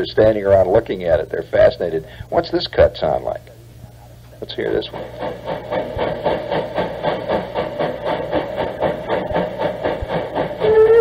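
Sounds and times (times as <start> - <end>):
steam locomotive exhaust chuffs: 4.4 - 11.0
steam whistle: 10.4 - 11.0.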